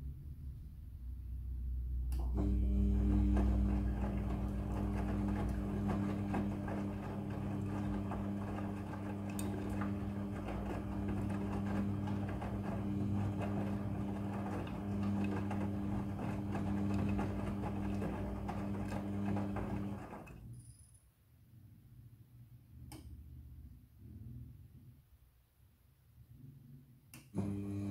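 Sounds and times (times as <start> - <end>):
washing machine motor hum: 1.8 - 20.7, 27.2 - 27.9.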